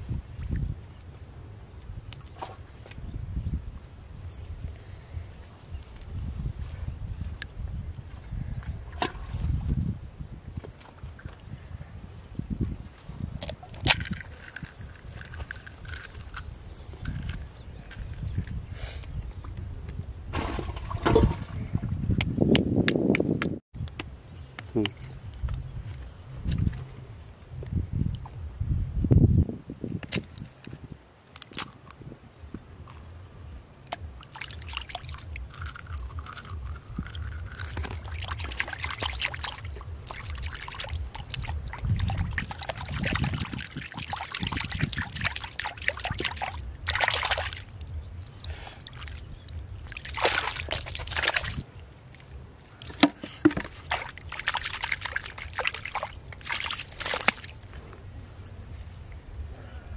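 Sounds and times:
mud squelches: 0:30.1 - 0:59.9
hand sloshing muddy water: 0:37.6 - 0:47.8, 0:48.5 - 0:51.6, 0:52.2 - 0:57.6
low steady rumble: 0:44.5 - 0:59.9.

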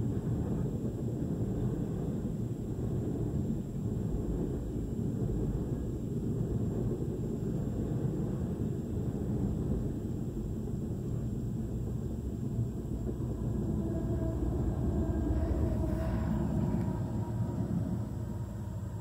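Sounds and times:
freight train wagons rumbling: 0:00.0 - 0:19.0
locomotive hum: 0:00.0 - 0:19.0.

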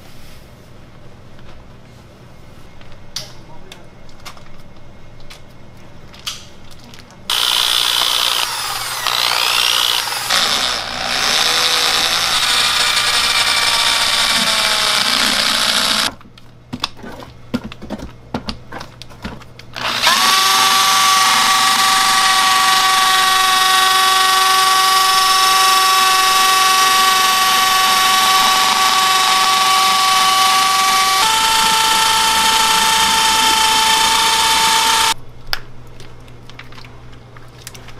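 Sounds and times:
electric paddle mixer whirring: 0:07.3 - 0:16.1, 0:19.8 - 0:35.2.

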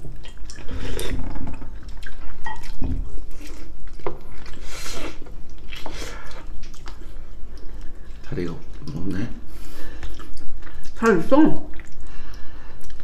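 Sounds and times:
wet chewing and lip smacks: 0:00.0 - 0:13.0
wet slurp: 0:00.2 - 0:08.0.

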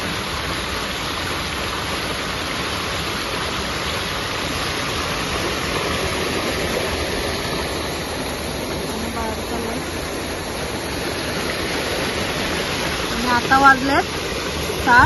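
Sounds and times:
water rushing through a channel: 0:00.0 - 0:15.0.

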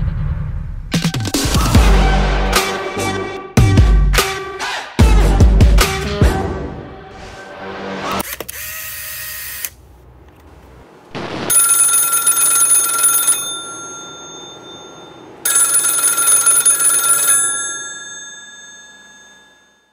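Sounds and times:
telephone bell ringing: 0:11.5 - 0:19.9.

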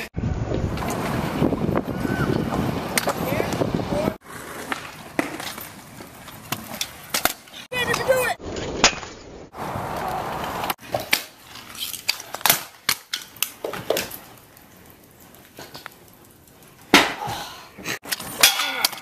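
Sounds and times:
scooter wheels rolling on concrete: 0:00.0 - 0:19.0
scooter deck clacking down: 0:10.4 - 0:14.4.

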